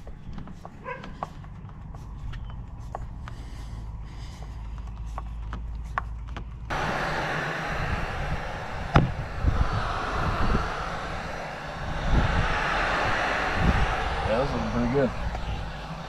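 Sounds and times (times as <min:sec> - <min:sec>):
heat gun blower hissing: 0:06.7 - 0:16.0
low rumble: 0:06.7 - 0:16.0.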